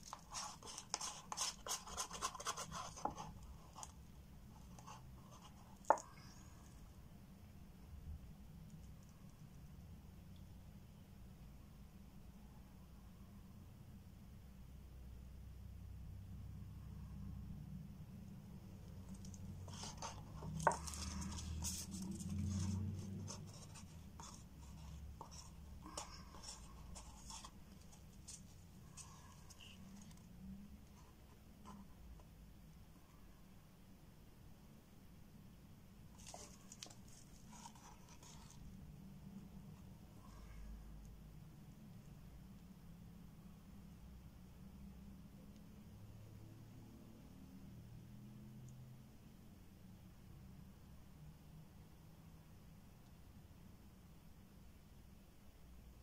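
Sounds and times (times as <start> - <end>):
crafting materials handled on table: 0.0 - 4.0, 4.6 - 6.3, 18.9 - 30.4, 36.1 - 38.8
stick scraping resin in a cup: 0.0 - 4.0, 19.0 - 30.3.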